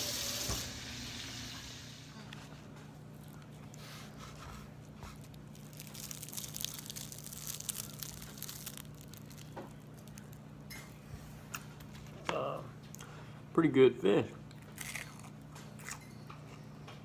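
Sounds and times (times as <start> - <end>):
fried batter crackling: 5.1 - 10.5.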